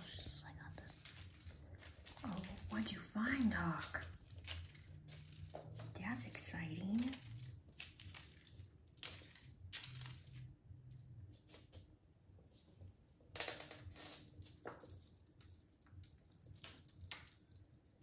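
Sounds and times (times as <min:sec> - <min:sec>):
kitten paws pattering on floor: 0:00.0 - 0:08.4.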